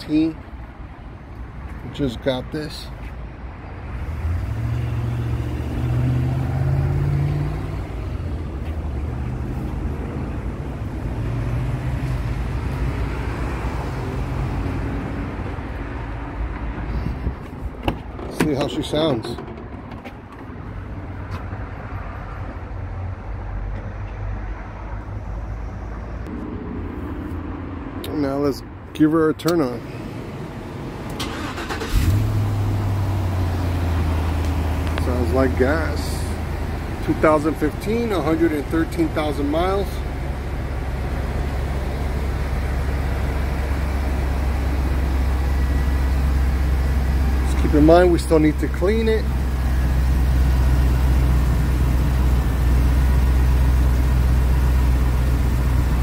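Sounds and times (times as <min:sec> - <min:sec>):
truck engine idling: 0:29.5 - 0:56.0.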